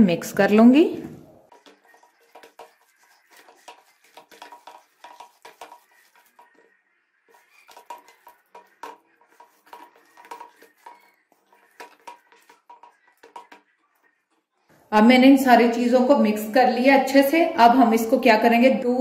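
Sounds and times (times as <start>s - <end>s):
fingers tapping steel bowl: 1.5s - 14.1s.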